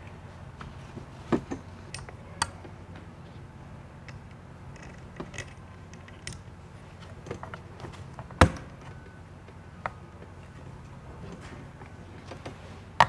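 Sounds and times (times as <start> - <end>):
metal parts clicking and knocking: 4.0 - 6.5.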